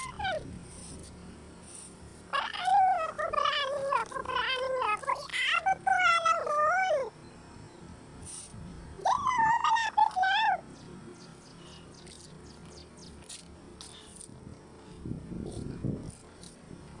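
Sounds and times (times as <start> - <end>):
high-pitched squeaky woman's voice: 0.0 - 0.4, 2.4 - 7.1, 9.0 - 10.6.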